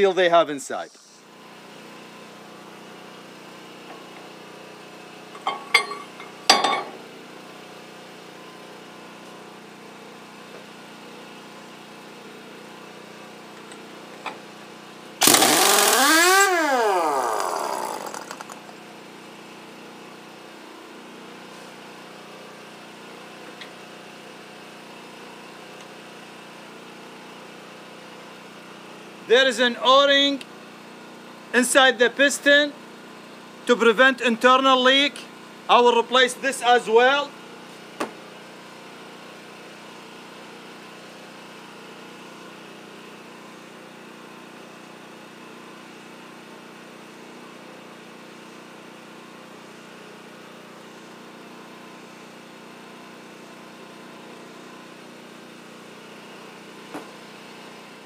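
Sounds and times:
impact wrench running: 5.4s - 7.0s, 15.2s - 18.8s.

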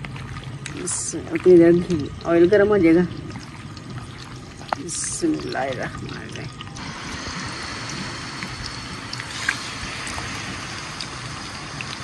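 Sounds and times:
small crackles of frying: 0.0s - 12.0s
chicken sizzling in hot oil: 4.8s - 12.0s.

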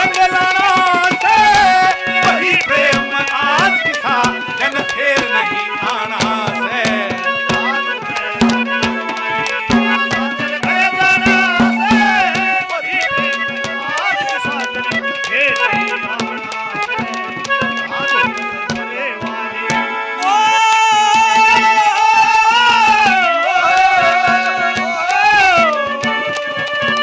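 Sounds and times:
hand drum strokes: 0.0s - 27.0s
harmonium chords: 0.0s - 27.0s
wavering melodic line: 1.7s - 21.1s.

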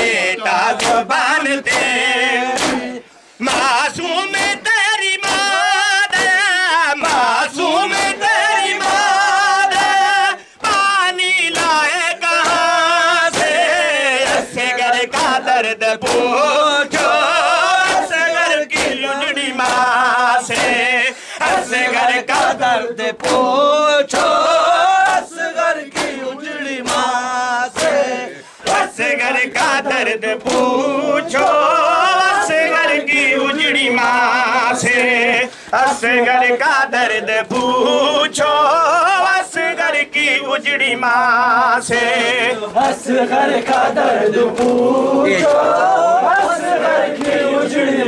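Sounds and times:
men singing a lament: 0.0s - 48.0s
hands beating on chests: 0.8s - 2.9s, 3.5s - 15.4s, 16.0s - 17.2s, 18.7s - 21.6s, 25.9s - 26.2s, 26.8s - 27.2s, 27.8s - 28.0s.

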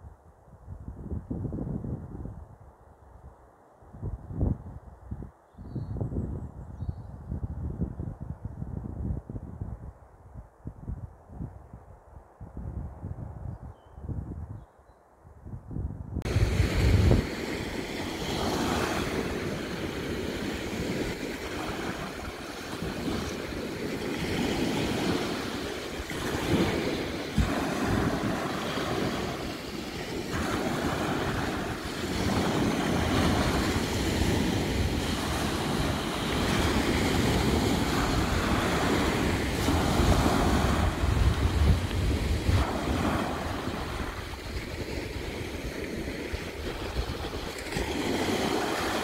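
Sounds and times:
wind buffeting the microphone: 0.0s - 49.0s
waves breaking on a sandy shore: 16.3s - 49.0s.

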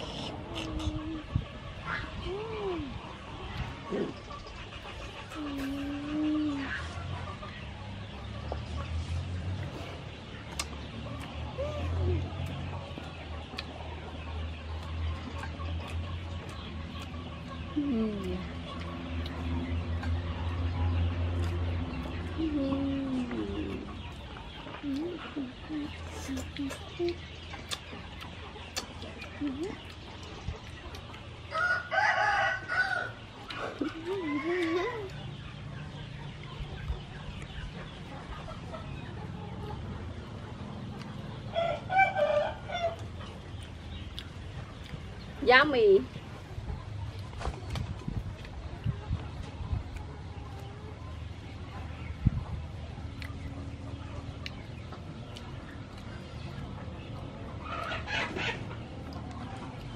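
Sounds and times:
chicken clucking: 0.0s - 59.9s
rooster crowing: 31.5s - 33.2s
steady low rumble: 33.1s - 59.9s.

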